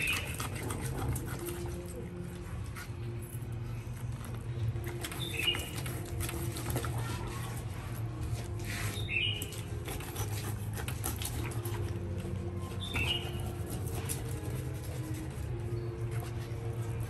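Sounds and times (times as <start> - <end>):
knife cutting fish head: 0.0 - 2.1, 4.9 - 7.7, 9.4 - 12.2.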